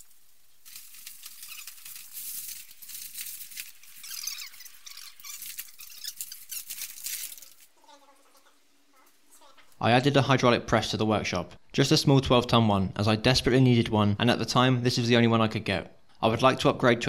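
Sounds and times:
foil ducting crinkling: 0.0s - 9.8s
ducting squeaks: 0.8s - 8.4s.

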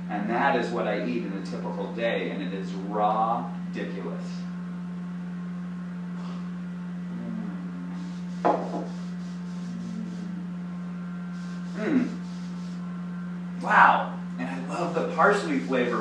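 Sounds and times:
steady low hum: 0.0s - 16.0s
person humming mm: 5.9s - 13.0s
glass knocking on wooden table: 8.4s - 9.0s.

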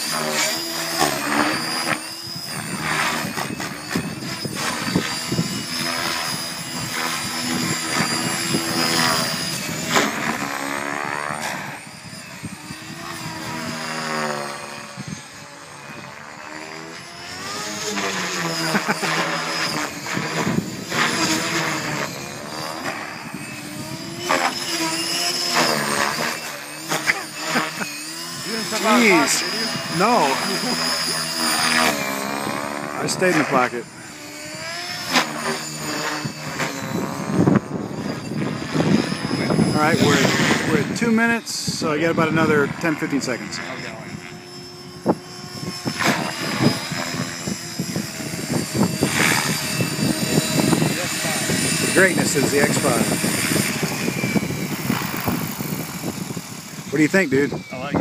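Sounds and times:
rc helicopter rotor whine: 0.0s - 58.0s.

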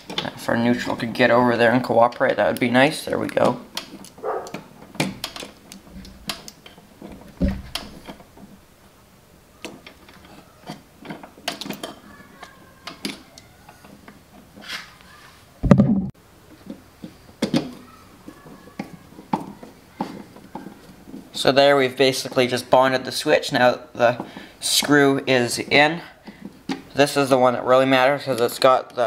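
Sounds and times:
loud thump: 7.4s - 7.9s, 15.6s - 16.1s.

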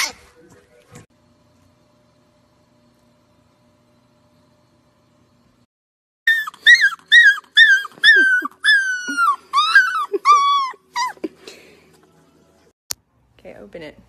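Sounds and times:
puppy yipping and howling: 6.3s - 11.3s.

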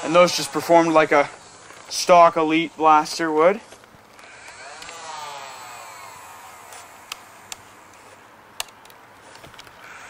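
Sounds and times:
sharp plastic clicks: 3.7s - 5.1s, 5.8s - 9.8s.

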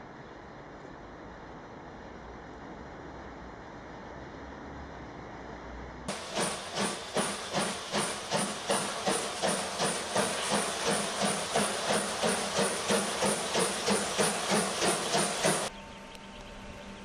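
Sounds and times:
steady rushing noise: 6.1s - 15.7s
steam hissing: 6.1s - 15.7s
steam locomotive chuffing: 6.1s - 15.7s.

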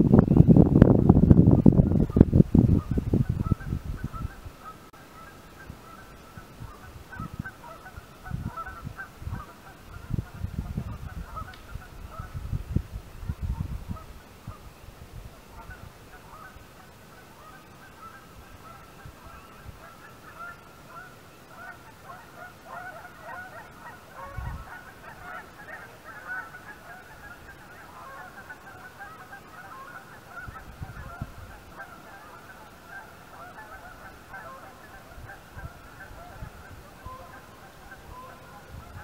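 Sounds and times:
wind buffeting microphone: 0.0s - 4.6s, 5.6s - 16.5s, 24.2s - 25.3s, 30.3s - 31.8s, 33.6s - 39.0s
geese honking: 1.7s - 12.4s, 15.5s - 39.0s.

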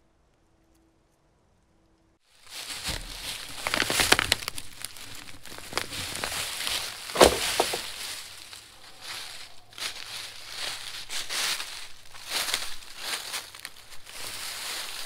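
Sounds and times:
footsteps crunching through dry leaves: 2.2s - 15.0s
loud crack: 7.0s - 8.1s.

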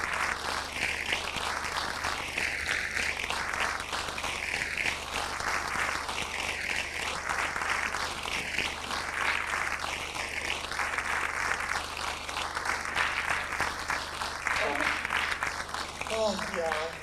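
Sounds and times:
audience applauding: 0.0s - 17.0s
low electrical hum: 7.2s - 17.0s.

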